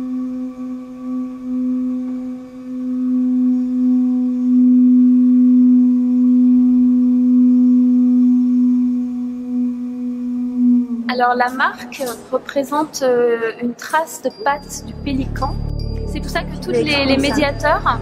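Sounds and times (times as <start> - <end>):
low ringing drone: 0.0 - 13.3, 14.2 - 18.0.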